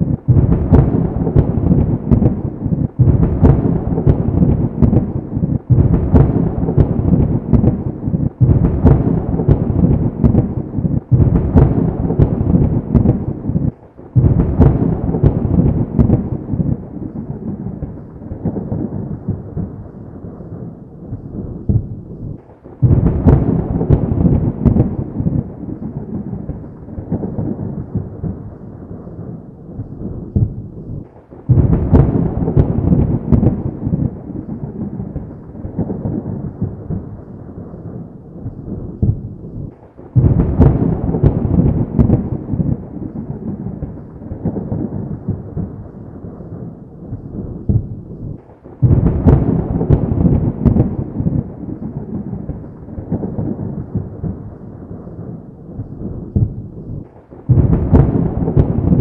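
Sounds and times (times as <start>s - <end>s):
thunder claps and rumble: 0.0s - 59.0s.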